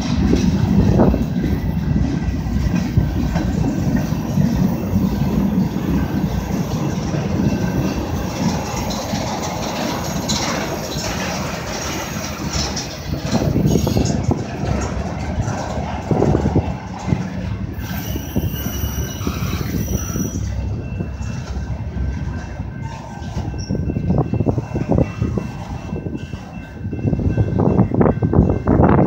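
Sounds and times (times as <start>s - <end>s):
freight train wheels rumbling: 0.0s - 29.0s
wheels clacking over rail joints: 0.0s - 29.0s.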